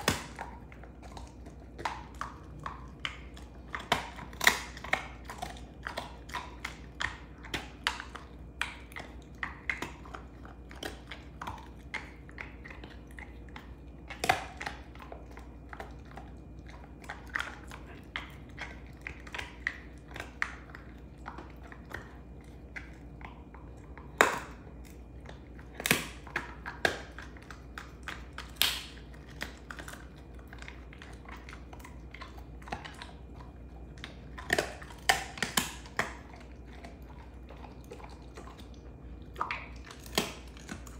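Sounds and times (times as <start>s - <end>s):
dog gnawing on bone: 0.0s - 40.9s
bone cracking: 21.4s - 40.9s.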